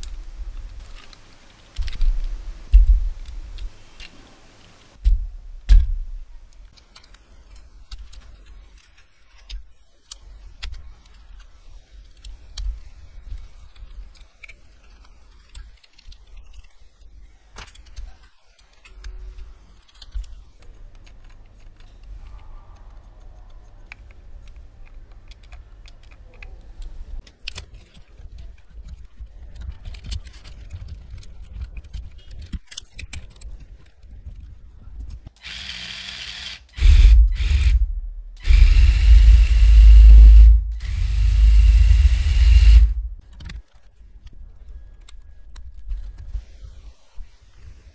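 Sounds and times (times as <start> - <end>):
plastic bricks clicking together: 5.7 - 37.5.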